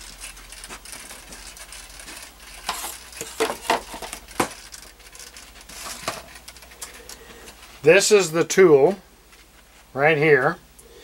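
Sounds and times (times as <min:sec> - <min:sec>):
handling rustling: 0:00.0 - 0:08.0.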